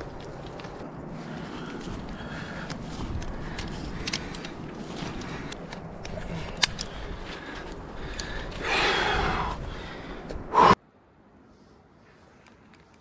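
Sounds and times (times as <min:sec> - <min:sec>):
climber hard breath: 0:01.2 - 0:10.8
climbing hardware clinking: 0:03.0 - 0:08.3.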